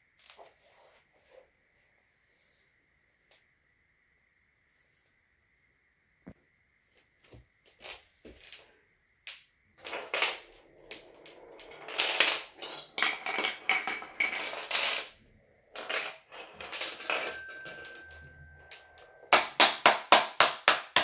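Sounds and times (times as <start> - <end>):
marbles clicking on wooden tracks: 9.2 - 21.0
wooden dominoes clattering: 9.3 - 21.0
small bell ringing: 16.9 - 19.3.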